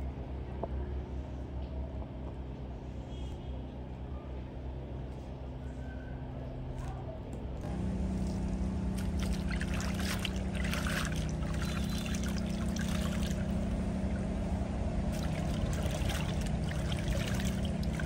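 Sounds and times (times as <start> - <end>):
steady low hum: 0.0 - 18.0
water splashing in plastic basin: 8.2 - 14.2, 15.1 - 18.0.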